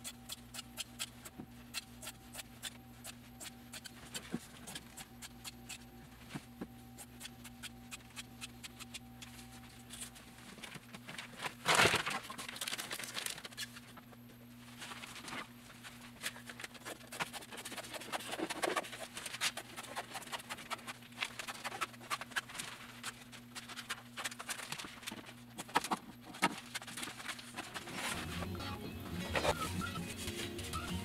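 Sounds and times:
scissors cutting plastic: 0.0 - 5.9, 7.0 - 10.2
steady low hum: 0.0 - 31.0
plastic film crinkling: 9.9 - 14.0, 14.6 - 28.3.

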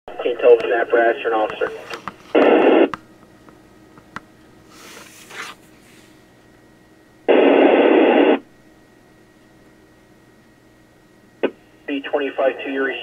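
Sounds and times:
burst of radio noise: 0.1 - 2.9, 7.3 - 8.4
faint radio hiss: 0.1 - 2.9, 7.3 - 8.5, 11.4 - 13.0
radio clicks: 0.2 - 4.3.

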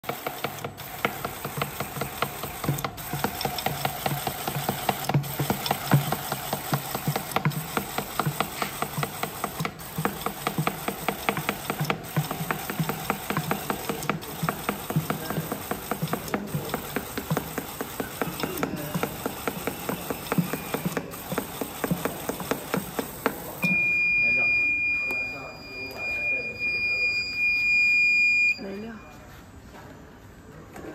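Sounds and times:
rapid run of card clicks: 0.0 - 23.5
feeder machine running: 0.0 - 23.7.

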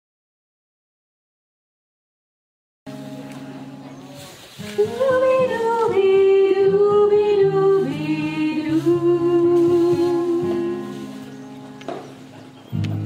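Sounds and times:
woman singing into microphone: 4.8 - 11.3.

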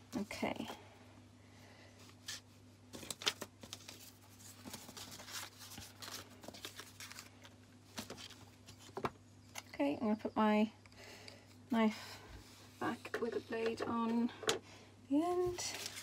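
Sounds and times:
low steady hum: 0.0 - 16.0
paper rustling: 2.1 - 9.1, 15.4 - 16.0.

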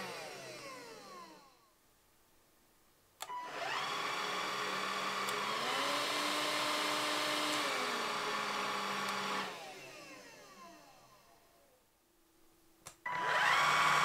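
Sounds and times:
vacuum cleaner motor whining: 0.0 - 1.6, 3.2 - 11.6, 13.1 - 14.0.

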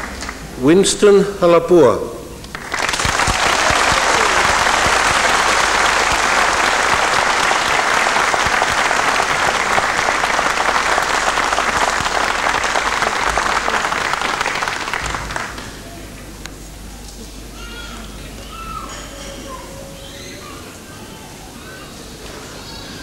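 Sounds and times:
audience applauding: 0.0 - 0.4, 2.5 - 16.0.

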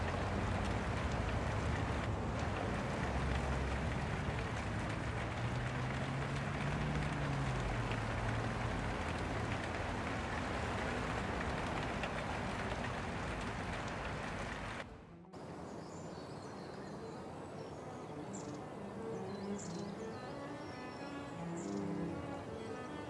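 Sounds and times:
steady rushing noise: 0.0 - 16.6.

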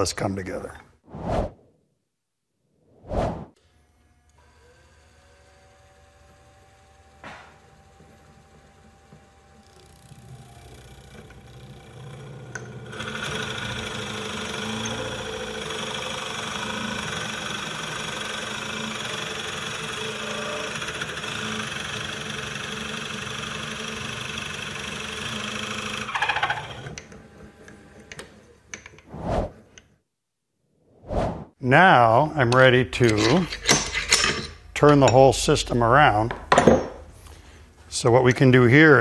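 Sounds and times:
lathe motor hum: 3.8 - 28.3
drill bit boring into wood: 4.3 - 27.2.

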